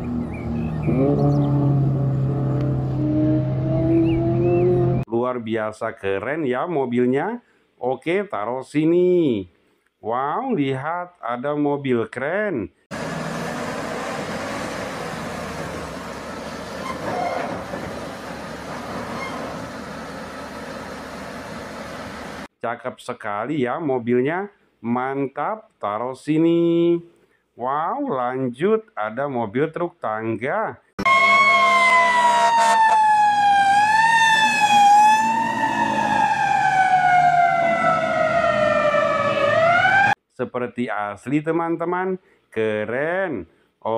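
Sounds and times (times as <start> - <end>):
fire truck siren wailing: 0.9 - 5.0, 13.0 - 22.5, 31.0 - 40.2
heavy crane diesel engine: 12.9 - 22.5
tyres rolling on road: 12.9 - 22.5.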